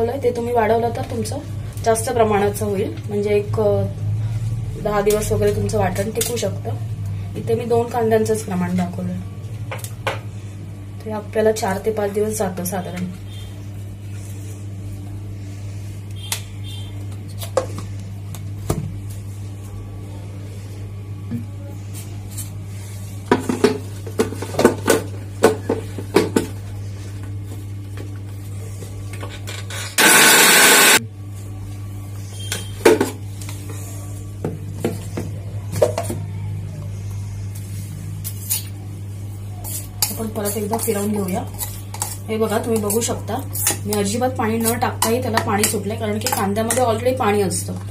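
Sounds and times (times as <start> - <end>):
mixer grinder running: 29.7 - 31.1.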